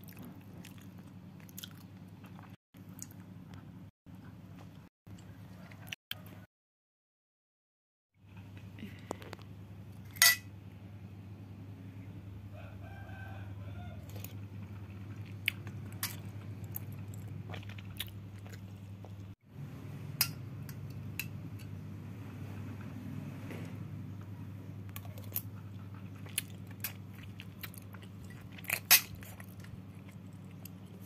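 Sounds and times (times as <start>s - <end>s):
steady low hum: 8.2s - 31.0s
utensils clinking on a plate: 10.1s - 10.5s
rooster crowing: 12.5s - 14.3s.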